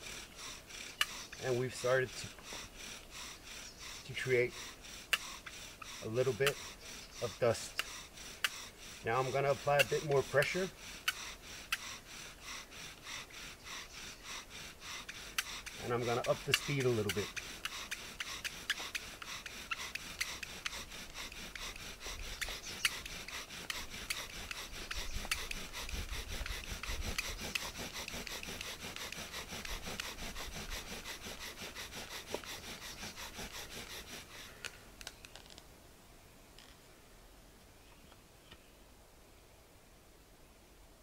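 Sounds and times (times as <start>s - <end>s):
bow drill wood friction: 0.0s - 35.6s.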